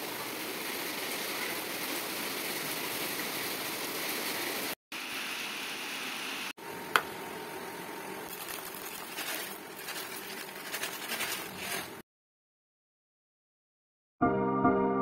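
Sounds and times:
cereal pouring into plastic bowl: 8.3s - 12.0s.

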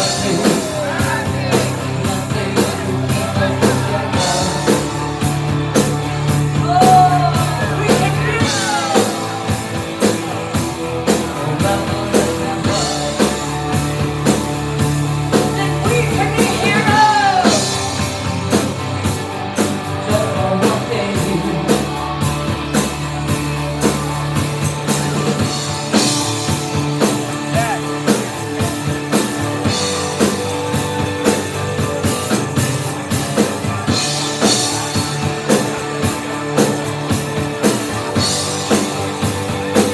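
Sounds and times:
bass guitar: 0.0s - 39.9s
drum kit beat: 0.0s - 39.9s
electric guitar: 0.0s - 39.9s
female lead vocals: 6.5s - 9.6s, 15.4s - 17.8s.

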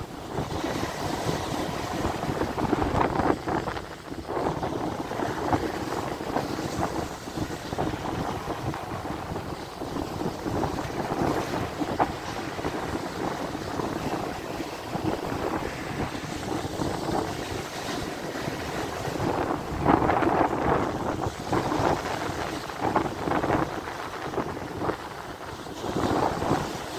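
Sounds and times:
surf breaking on a beach: 0.0s - 26.9s
wind buffeting microphone: 0.0s - 26.9s.

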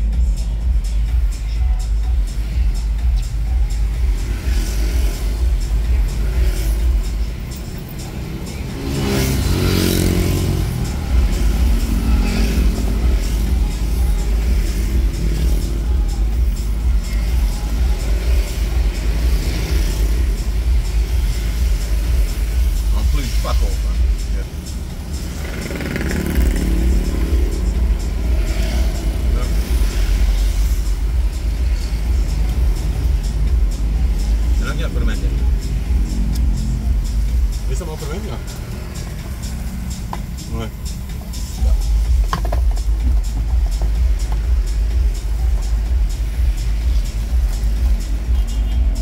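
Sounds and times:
background music: 0.0s - 49.0s
car idling: 0.0s - 49.0s
traffic rumble: 0.0s - 49.0s
motorcycle engine revving: 4.0s - 49.0s
vehicle passing: 6.2s - 16.0s, 23.3s - 41.6s.

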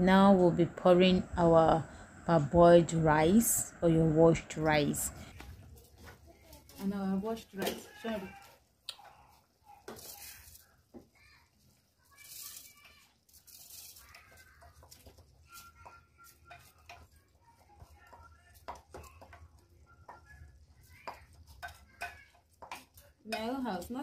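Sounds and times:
rice pouring and scraping: 9.8s - 17.2s.

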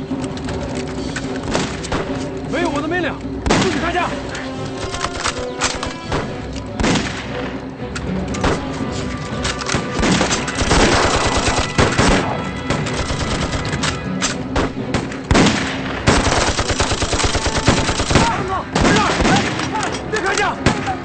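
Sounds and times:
background music: 0.0s - 21.0s
single rifle shots: 3.4s - 3.9s, 6.1s - 7.4s, 9.8s - 13.0s, 14.5s - 19.7s
machine-gun fire: 10.0s - 13.7s, 14.6s - 19.6s.

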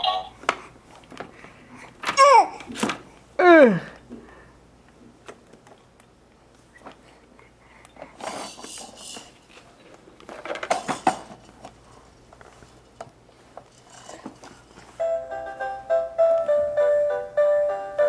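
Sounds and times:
plastic toys clattering and rattling: 8.1s - 15.0s.

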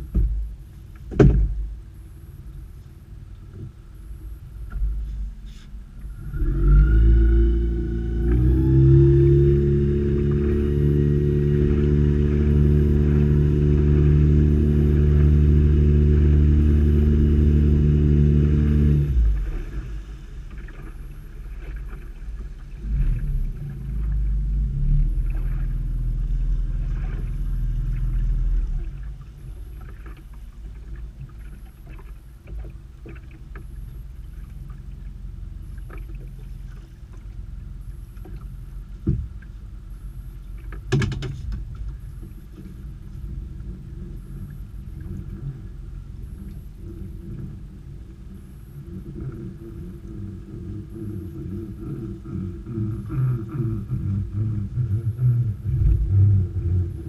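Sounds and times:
outboard motor running: 0.0s - 57.0s
knocks against boat hull: 1.1s - 1.7s, 39.0s - 39.4s, 40.8s - 41.6s.

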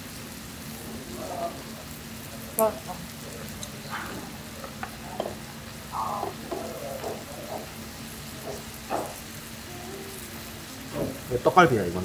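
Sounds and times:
food sizzling on a griddle: 0.0s - 12.0s
chopsticks and dishes clicking: 3.5s - 9.2s.

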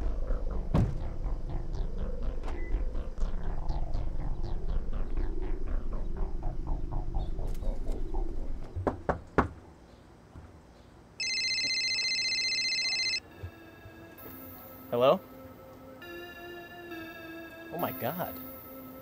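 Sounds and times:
low rumble: 0.0s - 8.7s
knocks on a door: 0.7s - 1.0s
cell phone ringing: 11.2s - 14.4s.

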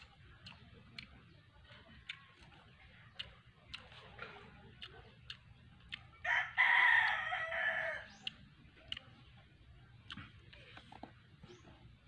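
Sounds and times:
rooster crowing: 6.2s - 8.1s.

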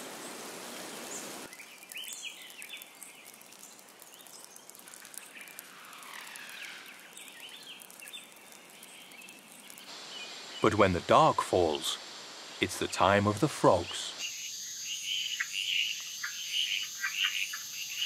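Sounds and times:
rain hiss: 0.0s - 18.0s
water dripping: 0.8s - 10.0s.

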